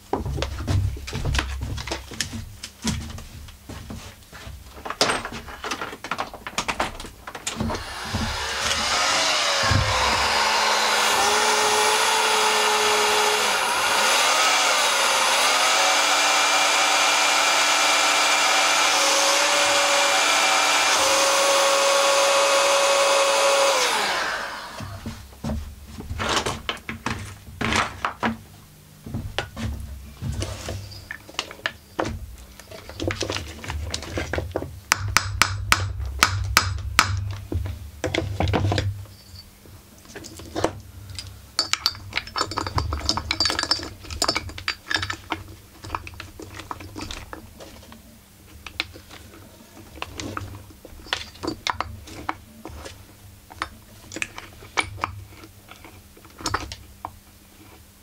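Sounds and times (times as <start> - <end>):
heat gun blowing: 7.7 - 25.0
metal tools clicking and knocking: 40.1 - 47.5, 50.0 - 52.4.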